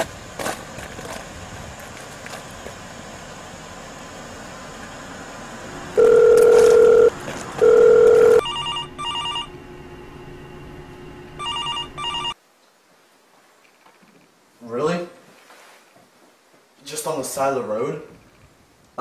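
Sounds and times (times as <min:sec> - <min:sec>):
telephone ringing: 0:05.9 - 0:09.5, 0:11.4 - 0:12.4
loud steady beeps: 0:06.0 - 0:09.6, 0:11.4 - 0:12.4.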